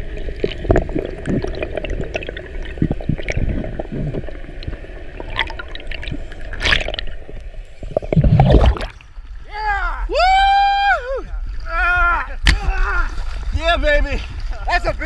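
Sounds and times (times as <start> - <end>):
underwater water gurgling: 0.0 - 9.5.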